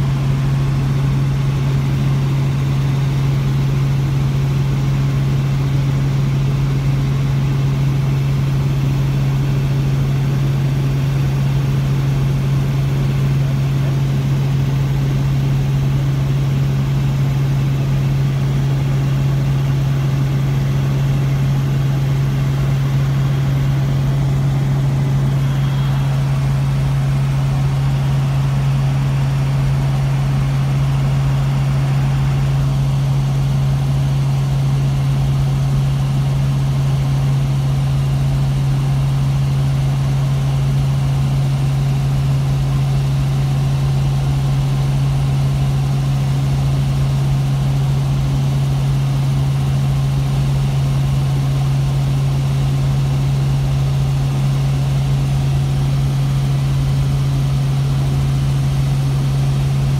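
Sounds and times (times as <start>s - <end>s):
helicopter engine and rotor drone: 0.0s - 59.9s.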